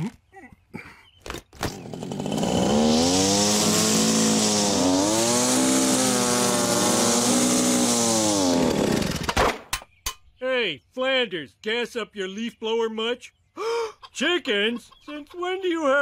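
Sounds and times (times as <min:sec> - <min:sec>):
leaf blower engine running: 0:01.6 - 0:09.3.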